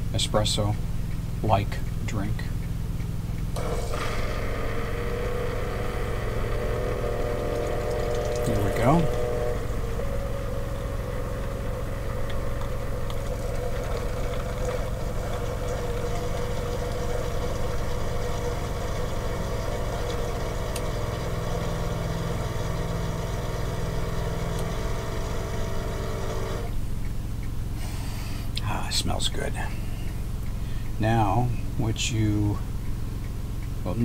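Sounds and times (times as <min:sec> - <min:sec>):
deeper hum: 0:00.0 - 0:34.0
coffee maker pump humming: 0:03.4 - 0:34.0
low drone: 0:03.6 - 0:17.0.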